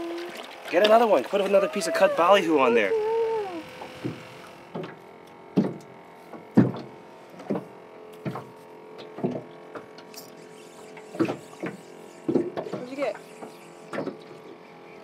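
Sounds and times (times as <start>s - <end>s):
waves knocking against boat hull: 3.8s - 9.9s.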